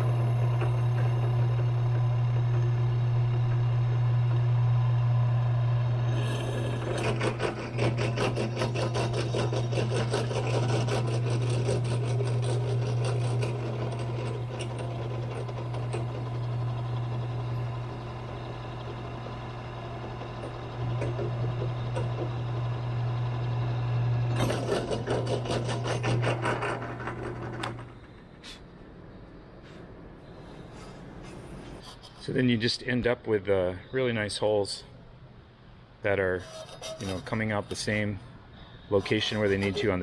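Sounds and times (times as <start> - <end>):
drill bit grinding metal: 0.0 - 28.0, 36.4 - 38.0, 38.9 - 40.0
drill press motor humming: 0.0 - 28.3.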